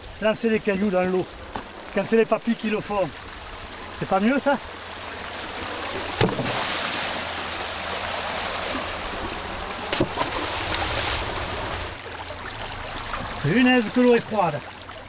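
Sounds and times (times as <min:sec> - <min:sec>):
water rushing over rocks: 0:00.0 - 0:15.0
stones splashing into water: 0:06.0 - 0:07.2, 0:09.8 - 0:11.5.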